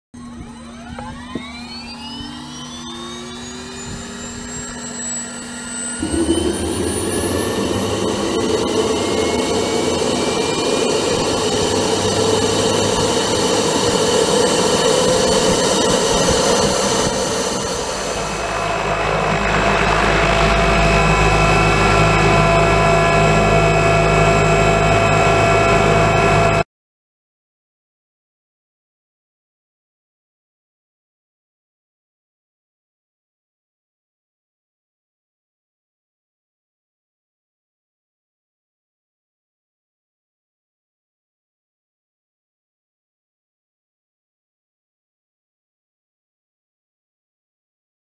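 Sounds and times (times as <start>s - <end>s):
helicopter engine and rotor: 0.2s - 26.6s.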